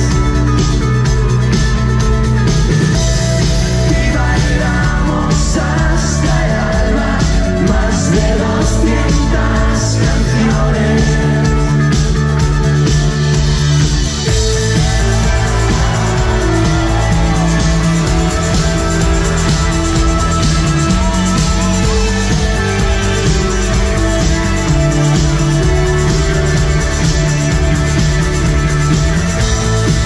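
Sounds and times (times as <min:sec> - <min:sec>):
live rock band: 0:00.0 - 0:30.0
person singing: 0:03.6 - 0:12.3.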